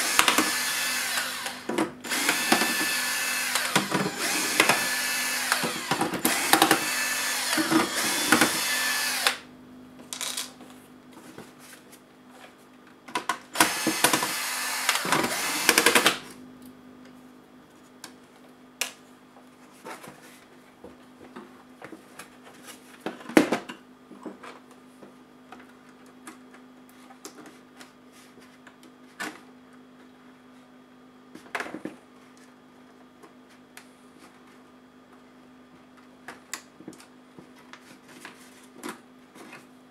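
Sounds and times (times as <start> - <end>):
electric screwdriver running: 0.0 - 9.4, 13.6 - 16.2.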